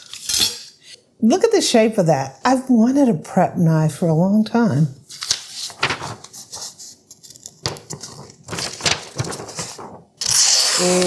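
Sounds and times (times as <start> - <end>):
paper rustling: 5.0 - 11.0
knife slicing paper: 8.6 - 11.0.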